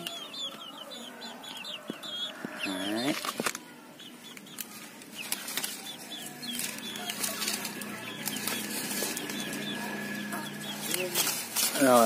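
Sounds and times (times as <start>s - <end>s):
leaves rustling and snapping: 3.0s - 3.7s, 4.3s - 9.8s, 10.5s - 12.0s.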